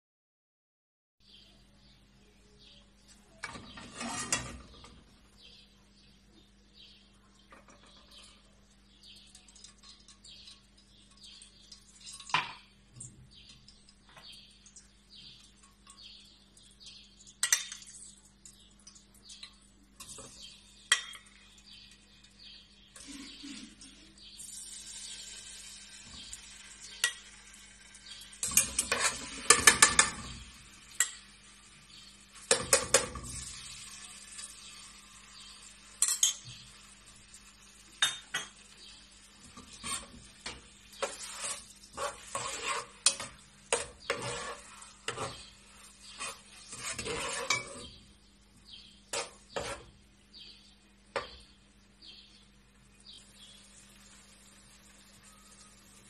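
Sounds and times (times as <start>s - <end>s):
light sizzle: 3.0s - 56.0s
wooden spoon scraping metal pot: 3.4s - 5.0s, 28.0s - 31.2s, 39.4s - 48.1s, 48.7s - 50.0s.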